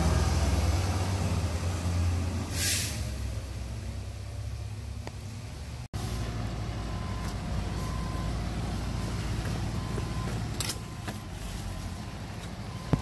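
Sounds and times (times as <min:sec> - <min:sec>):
diesel engine rumbling: 0:00.0 - 0:13.0
air hiss: 0:02.5 - 0:03.2.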